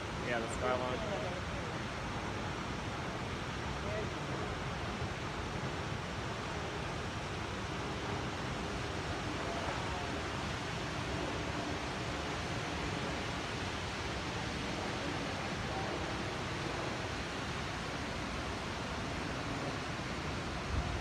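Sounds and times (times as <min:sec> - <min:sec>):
waterfall roaring: 0:00.0 - 0:21.0.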